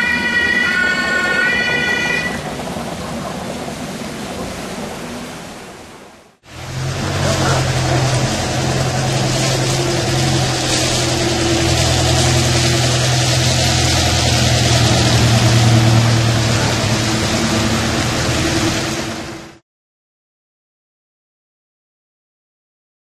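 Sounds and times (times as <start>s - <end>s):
heavy rain hissing: 0.0s - 19.6s
large vehicle engine running: 6.4s - 19.6s.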